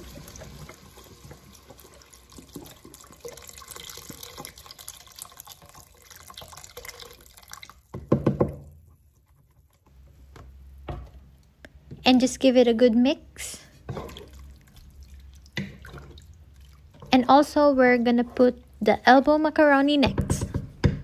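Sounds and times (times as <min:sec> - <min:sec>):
liquid pouring into a pot: 0:00.0 - 0:08.5, 0:13.8 - 0:17.1.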